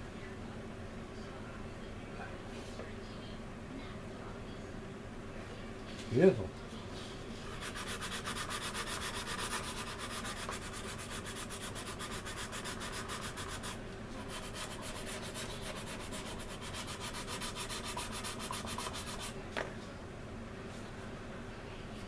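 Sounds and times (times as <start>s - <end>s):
sanding strokes on resin: 7.5s - 19.4s.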